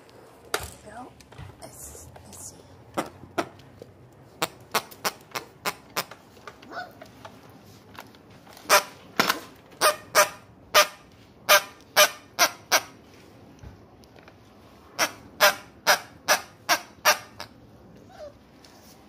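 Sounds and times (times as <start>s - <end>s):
dog toy squeaking: 9.8s - 12.9s, 15.0s - 17.5s.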